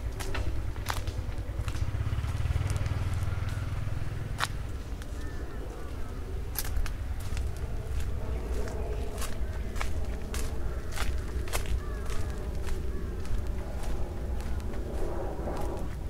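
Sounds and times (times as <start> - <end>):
steady low rumble: 0.0 - 16.0
footsteps: 6.5 - 16.0.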